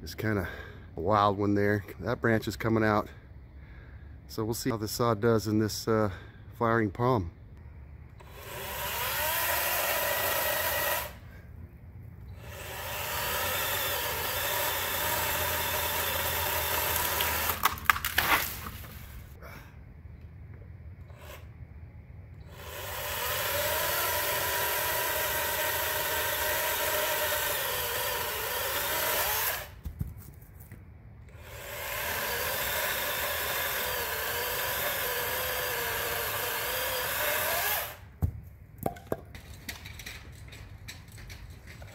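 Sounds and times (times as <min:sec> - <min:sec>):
electric chainsaw cutting branch: 0:08.2 - 0:11.2, 0:12.4 - 0:19.0, 0:22.5 - 0:29.8, 0:31.3 - 0:38.1
branch cracking: 0:17.0 - 0:19.0.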